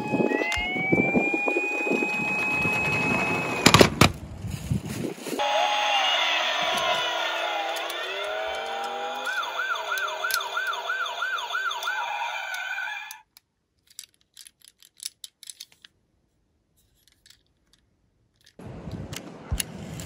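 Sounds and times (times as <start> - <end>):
emergency vehicle siren: 0.0 - 4.0, 5.4 - 13.2
toy being handled clicks: 12.5 - 16.0, 16.8 - 18.6.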